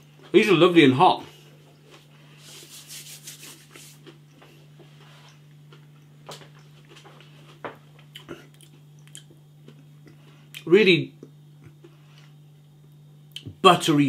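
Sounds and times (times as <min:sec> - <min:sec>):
steady low hum: 0:00.0 - 0:14.0
chewing crispy chicken nuggets: 0:06.8 - 0:10.3.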